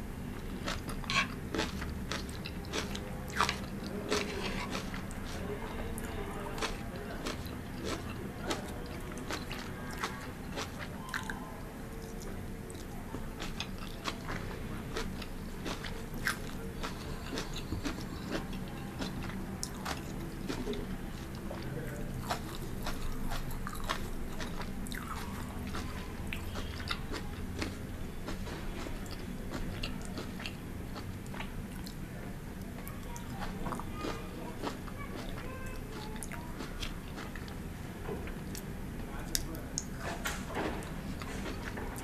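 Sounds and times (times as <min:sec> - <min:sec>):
steady low hum: 0:00.0 - 0:42.0
chewing and crunching: 0:00.4 - 0:32.0, 0:32.6 - 0:37.6, 0:38.2 - 0:42.0.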